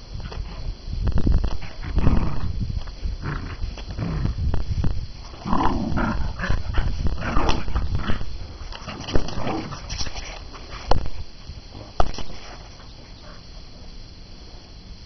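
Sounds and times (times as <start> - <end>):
dog growling in play: 1.6 - 2.6, 3.2 - 4.4, 5.3 - 9.9.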